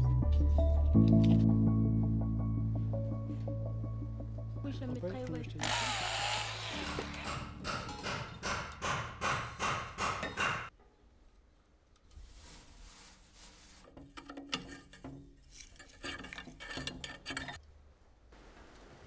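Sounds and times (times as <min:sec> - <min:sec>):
hand tool knocking on metal: 0:06.9 - 0:10.7.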